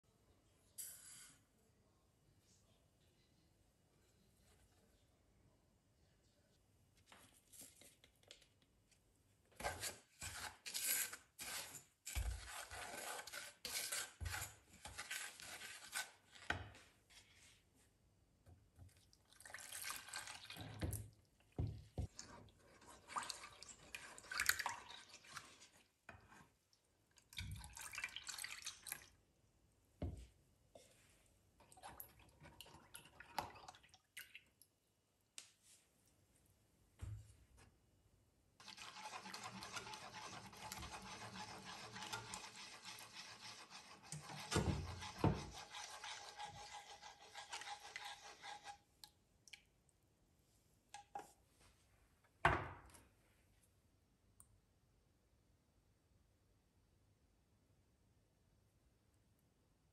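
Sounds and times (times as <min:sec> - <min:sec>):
spatula stirring against a pan: 0:09.6 - 0:17.6, 0:21.5 - 0:26.6, 0:38.6 - 0:49.0
milk pouring into a saucepan: 0:19.1 - 0:21.3, 0:22.0 - 0:26.5, 0:27.1 - 0:29.2, 0:31.6 - 0:34.7, 0:38.6 - 0:48.8.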